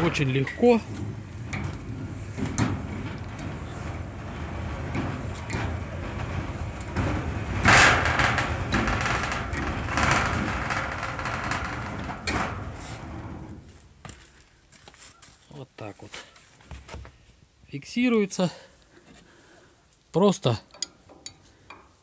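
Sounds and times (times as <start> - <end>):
metal clatter: 0.0 - 14.0
metal gate rattling and scraping: 0.0 - 14.2.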